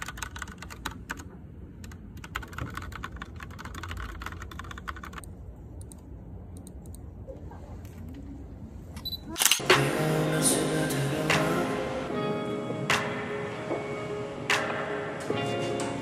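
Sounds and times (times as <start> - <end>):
typing on keyboard: 0.0 - 6.0
low background hum: 0.0 - 16.0.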